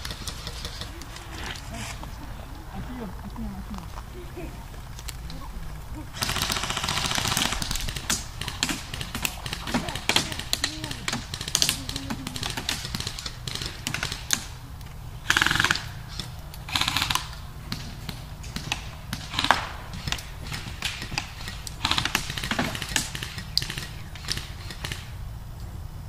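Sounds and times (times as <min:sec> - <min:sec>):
airsoft guns firing: 0:00.0 - 0:25.2.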